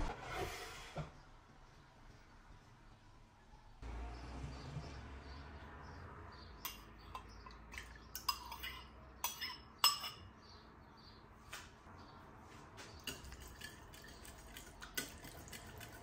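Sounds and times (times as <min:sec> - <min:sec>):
spoon clinking against bowls: 0:06.6 - 0:10.4, 0:13.0 - 0:16.0.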